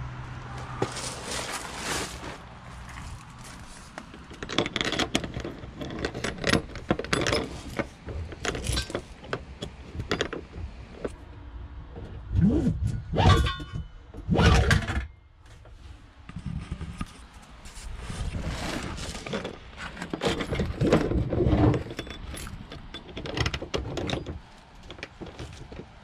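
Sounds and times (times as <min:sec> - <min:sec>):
heavy bumps: 0:00.4 - 0:17.0
hose handling clicks and rustles: 0:00.8 - 0:11.2, 0:12.7 - 0:26.0.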